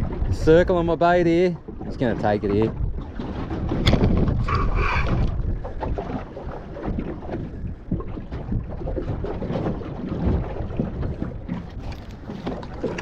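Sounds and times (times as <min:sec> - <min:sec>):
water moving around boat: 0:00.0 - 0:13.0
wind buffeting microphone: 0:00.0 - 0:13.0.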